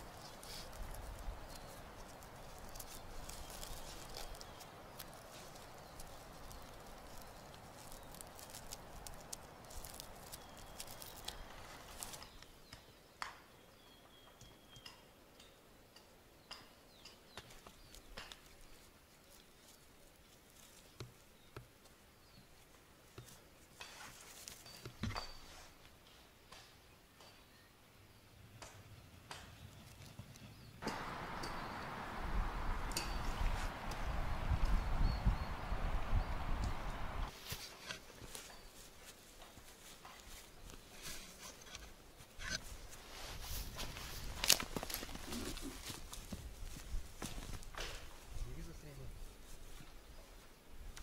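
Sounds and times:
twine rustling: 0.0 - 12.5, 29.8 - 51.0.

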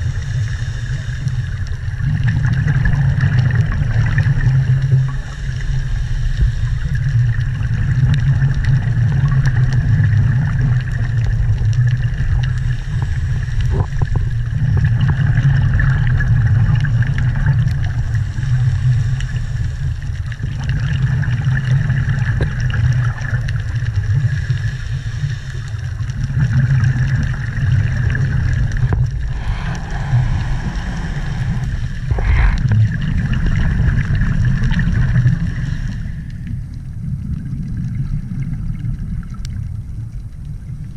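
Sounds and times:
low rumble of moving water: 0.0 - 40.9
faint even drone: 24.3 - 37.3.

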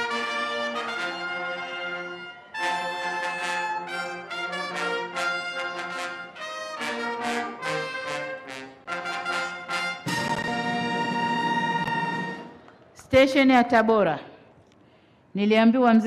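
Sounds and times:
brass band playing: 0.0 - 12.7.

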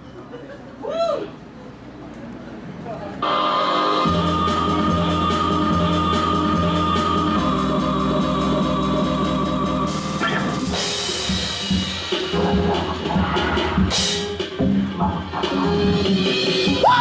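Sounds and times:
drum hits: 4.1 - 17.0
rock band playing live: 9.9 - 17.0.

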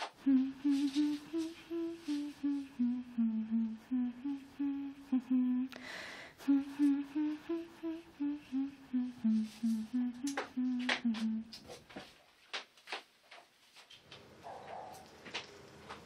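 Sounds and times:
woman humming: 0.0 - 11.8.

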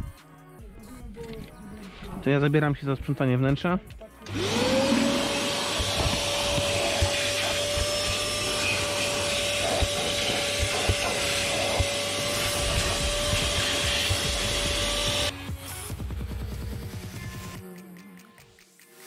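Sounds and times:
vacuum cleaner running: 4.3 - 15.3.

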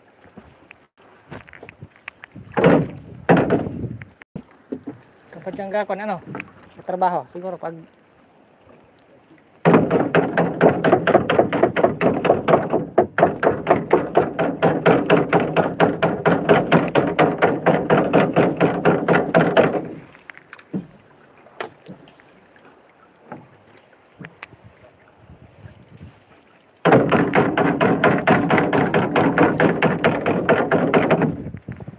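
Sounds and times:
banging on wooden boat hull: 2.5 - 3.9, 9.6 - 20.0, 26.8 - 31.5.

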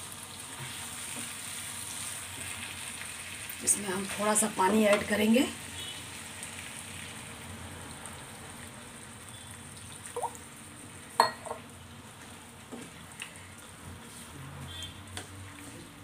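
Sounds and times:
curry sizzling in a pan: 0.0 - 16.0
water pouring: 9.8 - 10.4.

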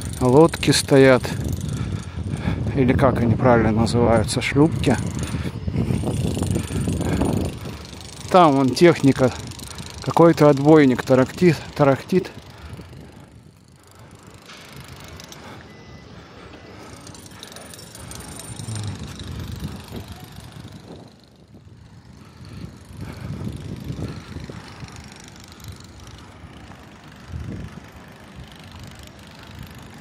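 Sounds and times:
open-air ambience: 0.0 - 30.0
breaker hammer rattling: 3.8 - 13.1, 16.7 - 21.4
low rumbling: 18.1 - 20.6.

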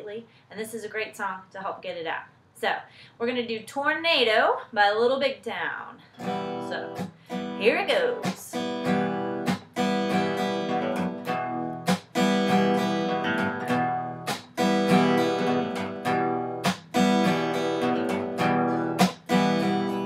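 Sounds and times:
acoustic guitar strumming: 6.2 - 20.0.

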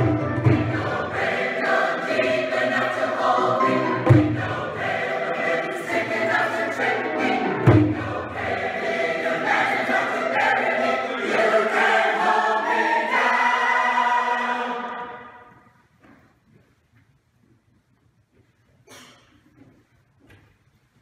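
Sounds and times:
mixed choir singing: 0.0 - 15.6.

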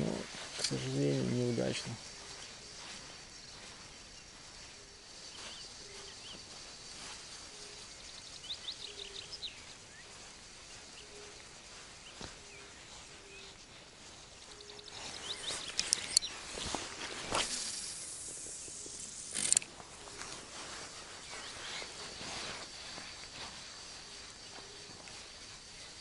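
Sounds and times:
small birds chirping: 0.0 - 26.0
sharp clicks: 15.6 - 16.3, 17.3 - 19.7.

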